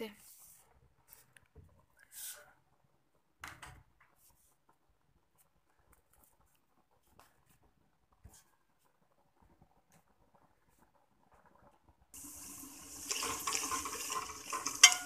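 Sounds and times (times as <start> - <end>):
plates and utensils clinking: 12.8 - 15.0.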